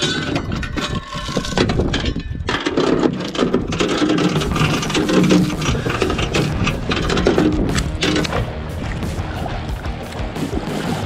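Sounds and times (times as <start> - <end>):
anchor chain rattling: 0.0 - 8.4.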